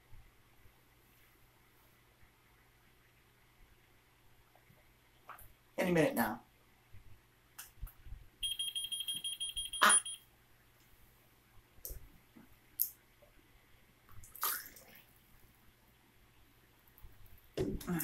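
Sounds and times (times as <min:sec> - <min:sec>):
high pulsing electronic beeping: 0:08.4 - 0:10.2.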